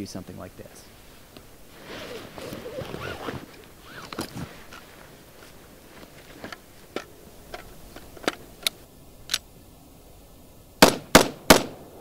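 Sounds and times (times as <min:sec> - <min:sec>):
rifle handling clicks: 0:06.0 - 0:09.5
rifle shots: 0:10.8 - 0:11.8.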